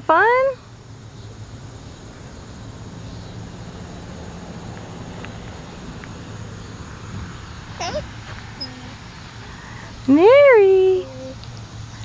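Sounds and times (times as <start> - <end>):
distant engine hum: 0.0 - 12.0
rumbling outdoor background: 0.0 - 12.0.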